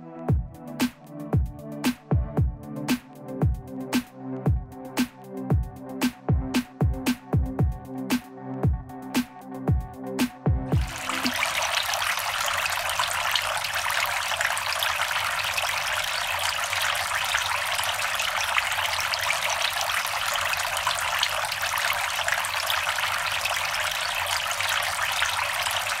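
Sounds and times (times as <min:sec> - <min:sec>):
fountain water trickling: 0:10.8 - 0:26.0.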